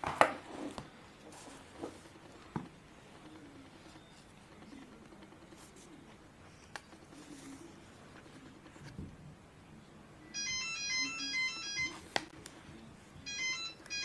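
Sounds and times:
hand rustling over paper: 5.4 - 9.0.

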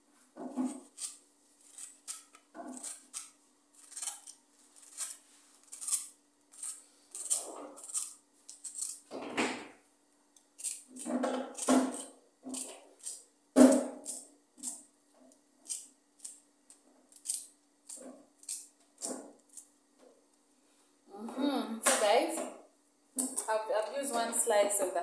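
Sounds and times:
knife slicing cabbage: 0.6 - 9.0, 10.6 - 14.8.

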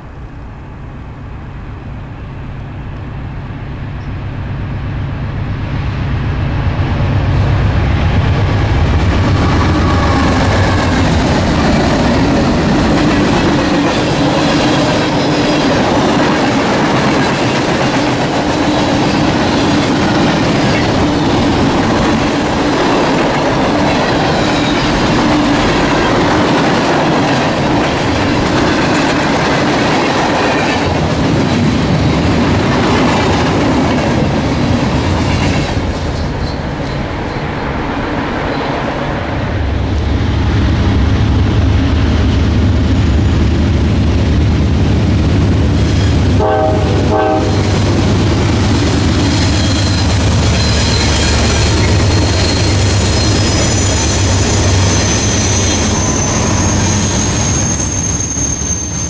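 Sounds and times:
train wheels clattering on rails: 6.6 - 59.0
faint wheel squeal: 49.5 - 59.0.

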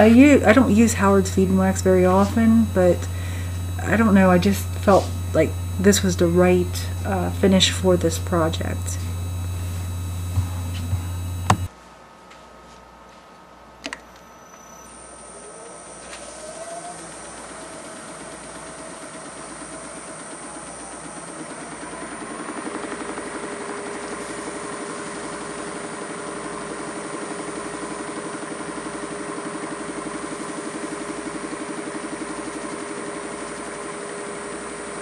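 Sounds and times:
wood lathe motor running: 0.0 - 11.7, 15.1 - 35.0
cloth rubbing spinning wood: 3.6 - 11.7.

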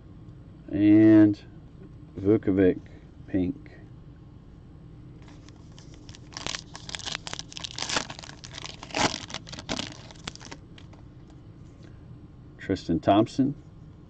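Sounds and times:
foil wrapper crinkling and tearing: 5.2 - 11.0.

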